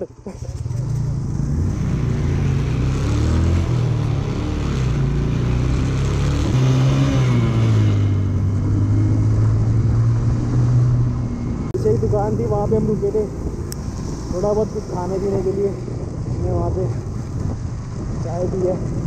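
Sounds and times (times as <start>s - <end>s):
wind rushing over microphone: 6.8s - 19.0s.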